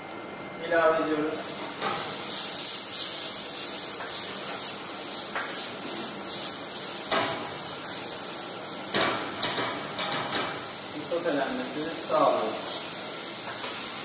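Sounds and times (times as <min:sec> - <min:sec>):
mushrooms sizzling in oil: 0:01.4 - 0:14.0.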